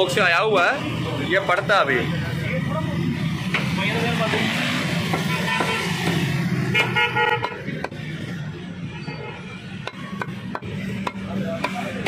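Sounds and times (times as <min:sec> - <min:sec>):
low traffic hum: 0:00.0 - 0:12.0
vehicle horn beeping: 0:05.2 - 0:06.1, 0:06.7 - 0:07.6.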